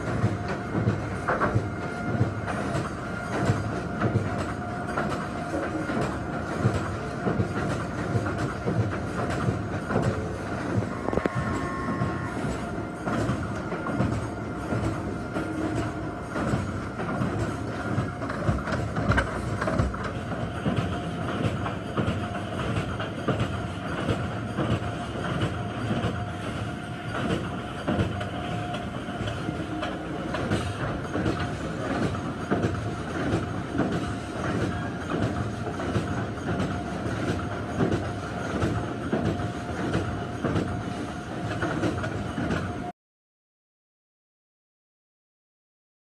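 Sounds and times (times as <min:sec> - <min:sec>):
faint machine whine: 0:00.0 - 0:33.2
steady machine hum: 0:00.0 - 0:41.5
machinery clattering and rattling: 0:00.0 - 0:42.9.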